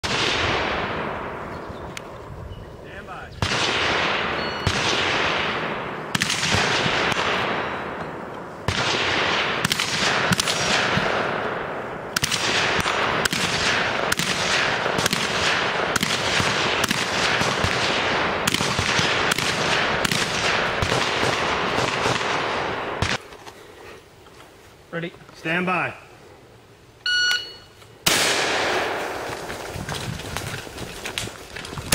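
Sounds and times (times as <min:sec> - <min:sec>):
gunshots with long echo: 0:00.0 - 0:02.2, 0:03.4 - 0:23.2, 0:28.0 - 0:29.8.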